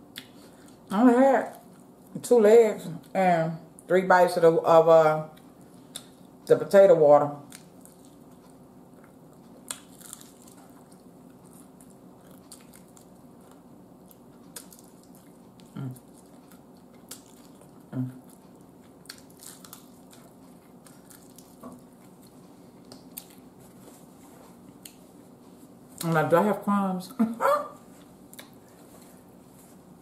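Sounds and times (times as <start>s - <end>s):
low steady hum: 0.0s - 30.0s
mouth clicks and food crunches: 7.4s - 23.5s, 28.3s - 28.7s
chewing fried chicken: 7.4s - 23.8s.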